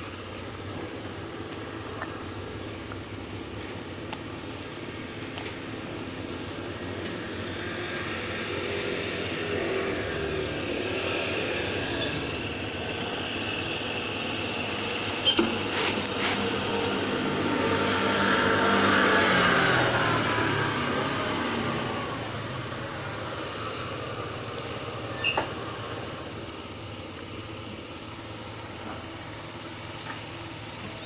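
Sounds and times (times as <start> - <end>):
engine humming: 0.0 - 31.0.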